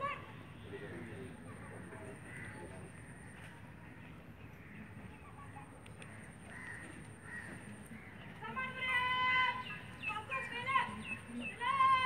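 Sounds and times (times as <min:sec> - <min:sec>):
crows cawing: 0:00.8 - 0:03.3, 0:06.0 - 0:08.2.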